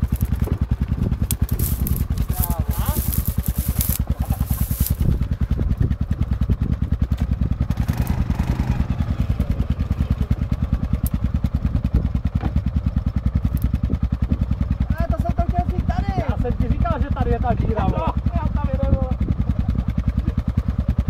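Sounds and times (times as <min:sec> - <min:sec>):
quad bike engine idling: 0:00.0 - 0:21.0.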